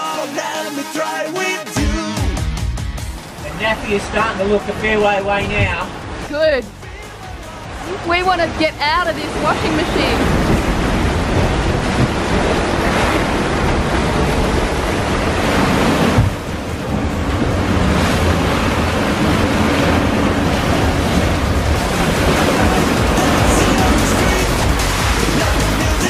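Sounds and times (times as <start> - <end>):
waves rushing and breaking: 3.1 - 26.0
wind buffeting the microphone: 7.8 - 24.8.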